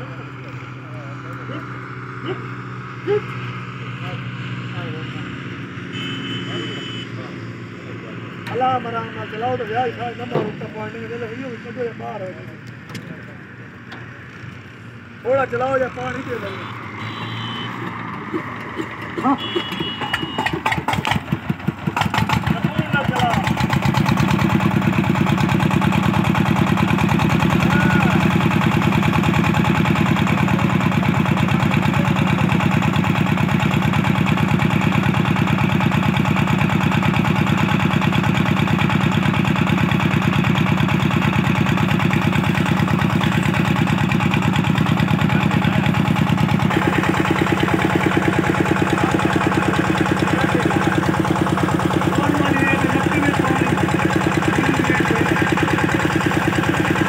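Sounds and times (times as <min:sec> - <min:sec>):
diesel engine knocking: 0:15.2 - 0:57.0.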